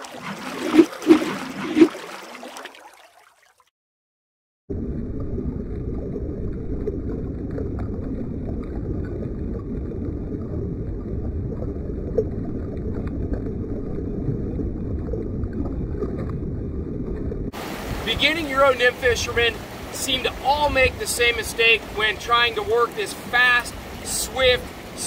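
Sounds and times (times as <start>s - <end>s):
river current rushing: 0.0s - 2.7s, 17.6s - 25.0s.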